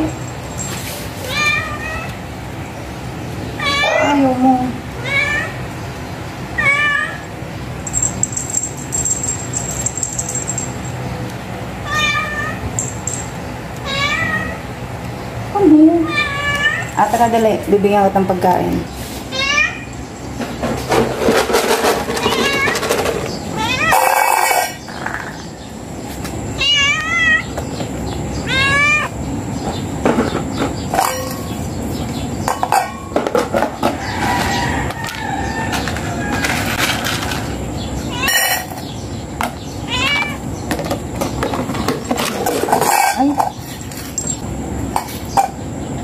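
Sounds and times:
cat meowing: 1.2s - 2.2s, 3.6s - 4.4s, 5.0s - 5.6s, 6.6s - 7.3s, 11.8s - 12.7s, 13.8s - 14.6s, 16.0s - 16.9s, 19.3s - 19.9s, 23.6s - 24.5s, 26.6s - 27.5s, 28.4s - 29.2s, 38.1s - 38.6s, 39.8s - 40.4s.

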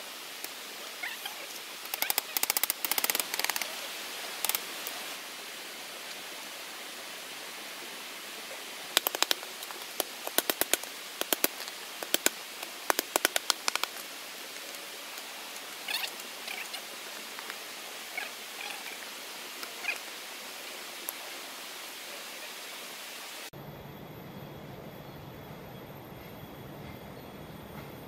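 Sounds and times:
steady hiss: 0.0s - 28.0s
sharp clicks from bamboo: 1.8s - 3.7s, 4.4s - 4.6s, 9.0s - 14.7s.

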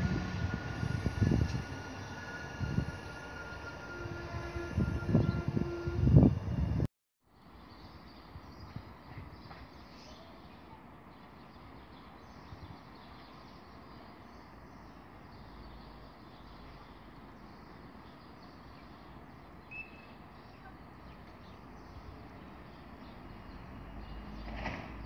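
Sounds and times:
distant train rumble: 0.0s - 6.9s
bird chirp: 7.4s - 24.6s.

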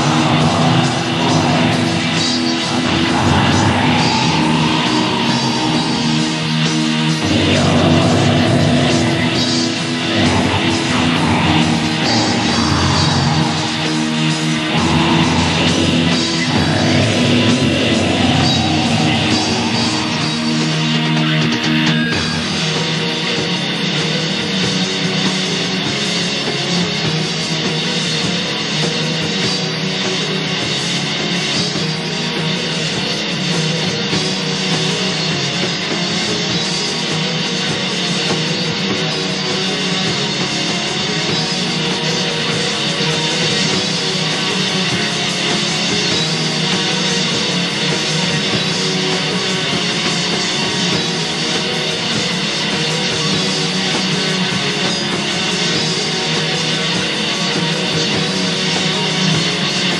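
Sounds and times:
black metal music: 0.0s - 23.6s.

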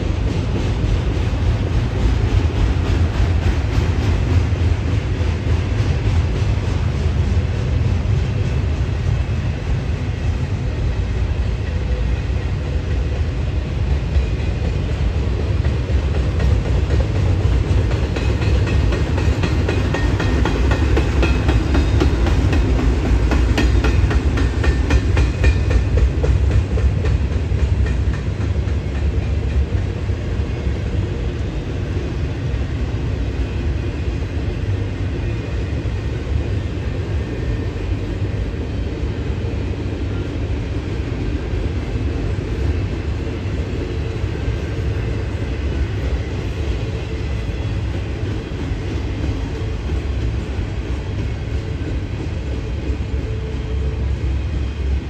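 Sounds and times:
train wheels rumbling on rail: 0.0s - 55.0s
wheels clicking over rail joints: 13.8s - 30.6s.

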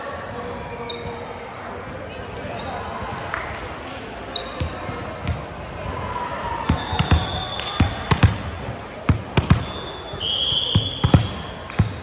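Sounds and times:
sneaker squeaks: 0.6s - 3.0s, 3.9s - 5.5s, 6.7s - 8.4s, 9.4s - 12.0s
basketball bouncing on court: 4.6s - 5.6s, 6.7s - 9.8s, 10.7s - 12.0s.

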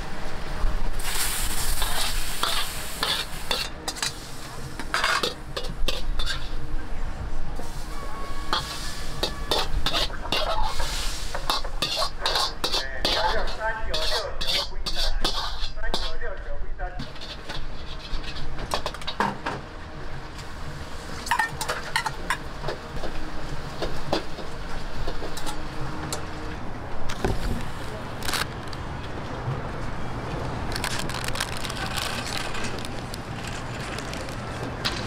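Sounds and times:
metal cooking utensils clattering: 1.5s - 4.2s, 4.8s - 6.6s, 7.7s - 16.2s, 17.0s - 19.5s, 21.2s - 22.6s.

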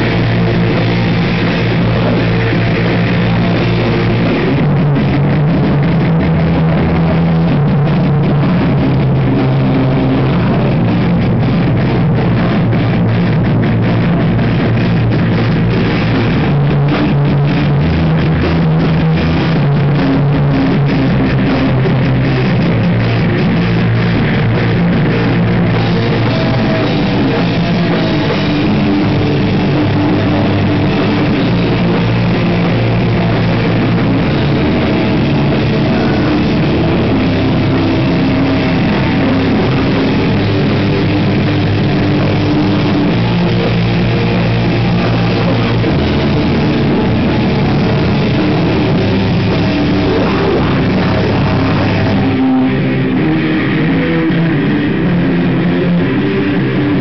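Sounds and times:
fast drum hits: 0.0s - 55.0s
rock band playing: 0.0s - 57.0s.

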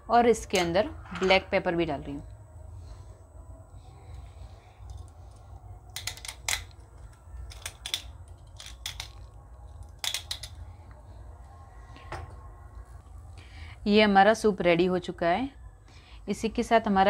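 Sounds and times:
pepper mill grinding: 6.0s - 10.6s.

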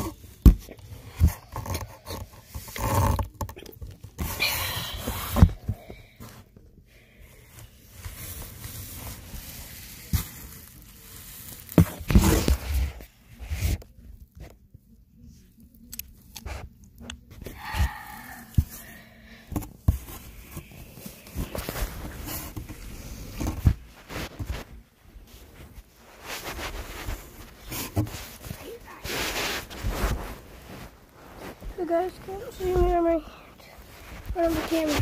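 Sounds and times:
blanket fabric rustling: 21.0s - 35.0s.

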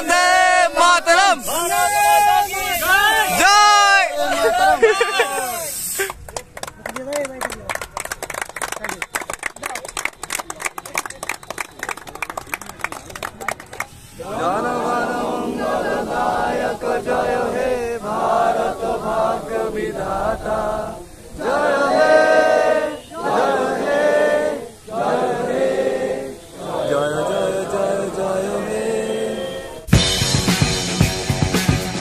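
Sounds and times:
group singing in unison: 0.0s - 1.1s, 14.2s - 29.9s.

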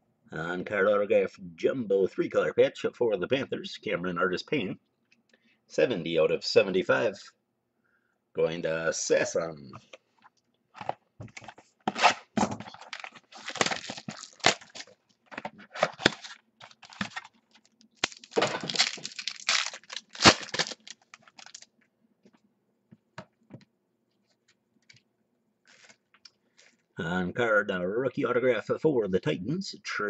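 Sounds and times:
wrapping torn and crinkled: 11.9s - 15.0s, 15.7s - 21.7s, 25.7s - 26.8s.

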